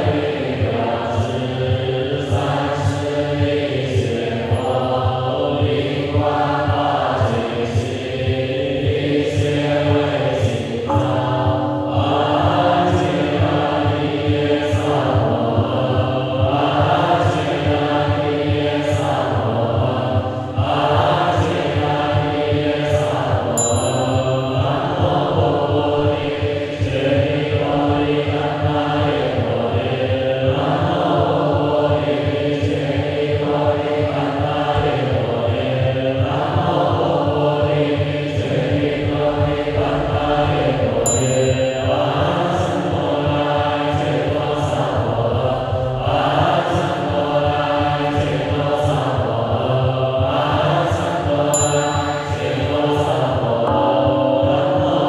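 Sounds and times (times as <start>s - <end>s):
voices chanting: 0.0s - 55.0s.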